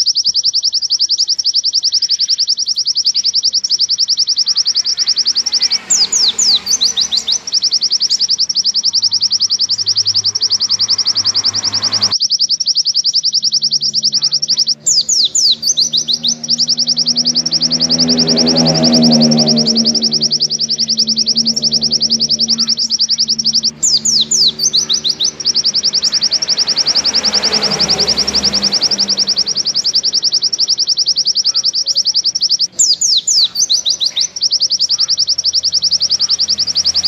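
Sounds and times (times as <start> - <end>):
bird singing a fast trill: 0.0 - 37.0.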